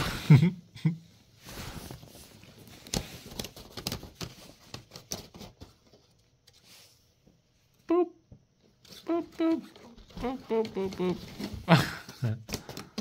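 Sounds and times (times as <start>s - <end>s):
cat scratching and tapping: 2.8s - 6.1s.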